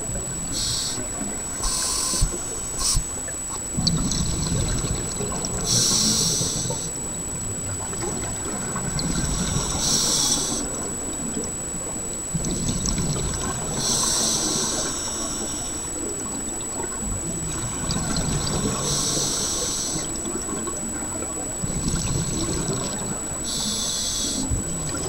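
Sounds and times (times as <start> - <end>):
thin high whine: 0.0 - 25.0
regulator inhalation hiss: 0.5 - 3.2, 5.6 - 7.0, 9.2 - 10.9, 13.7 - 16.1, 18.7 - 20.2, 23.4 - 24.6
bubbling exhalations: 3.8 - 6.9, 21.6 - 23.8.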